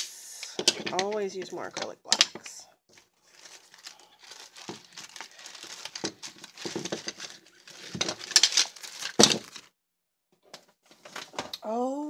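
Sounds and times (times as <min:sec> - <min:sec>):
plastic packaging crinkling: 0:02.9 - 0:09.7.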